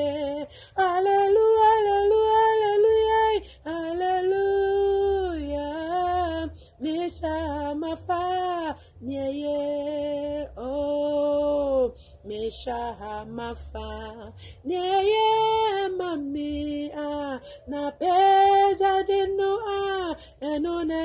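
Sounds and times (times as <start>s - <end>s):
woman singing unaccompanied: 0.0s - 21.0s.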